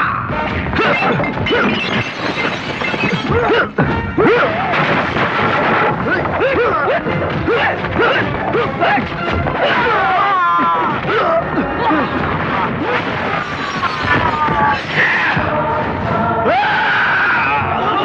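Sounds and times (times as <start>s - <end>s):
background music: 0.0s - 18.0s
punch and crash sound effects: 0.3s - 10.0s.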